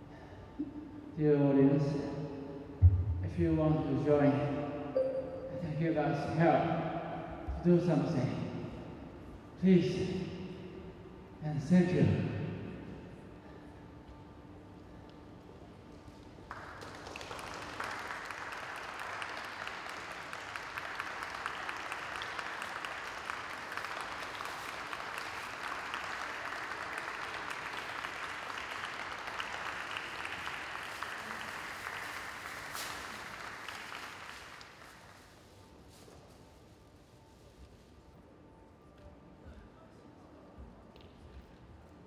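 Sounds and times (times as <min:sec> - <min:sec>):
audience applauding: 0:16.5 - 0:35.4.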